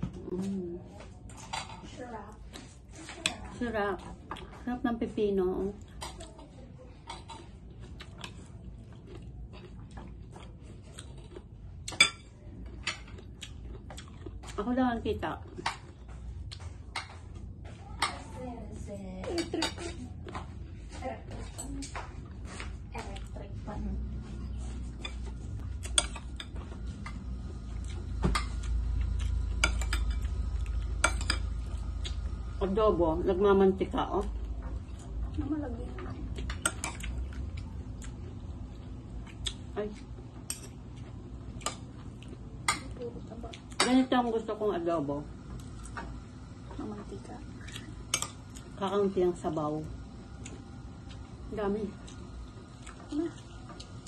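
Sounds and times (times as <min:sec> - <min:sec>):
steady low hum: 0:00.0 - 0:54.0
crunchy chewing of cucumber: 0:07.7 - 0:11.9, 0:12.7 - 0:14.6
metal spoon clinking on plates: 0:29.5 - 0:31.6.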